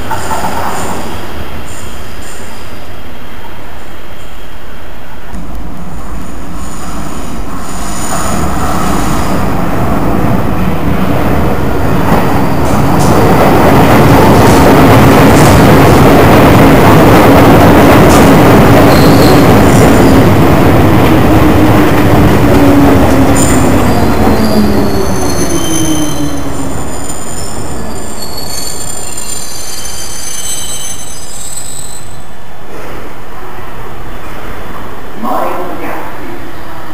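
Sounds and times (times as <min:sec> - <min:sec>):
train rumbling in tunnel: 0:00.0 - 0:36.9
faint high wheel squeal: 0:18.9 - 0:19.5, 0:23.8 - 0:32.5
train running gear noise: 0:23.4 - 0:32.8
traction motor whine: 0:26.1 - 0:32.4.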